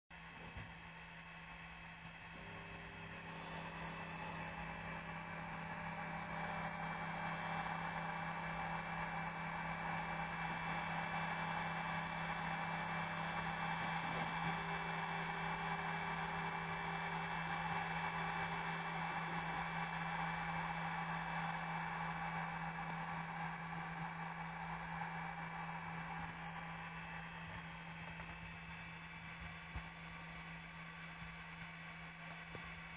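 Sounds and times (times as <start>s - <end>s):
stepper motors whirring: 9.8s - 25.4s.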